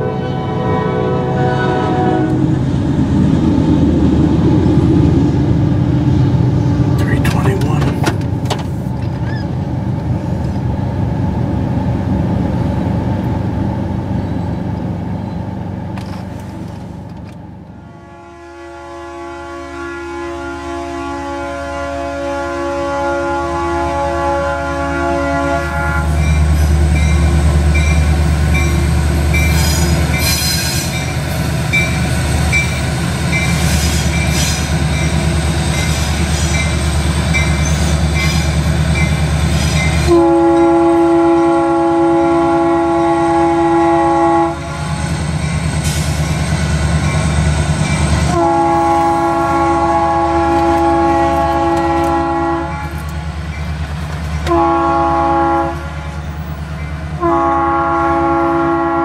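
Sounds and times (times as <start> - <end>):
train horn blasts: 0.0 - 2.6, 17.8 - 28.7, 39.8 - 45.0, 48.2 - 53.2, 54.4 - 59.0
diesel locomotives rumbling: 0.0 - 59.0
crossing bell ringing: 26.2 - 40.1.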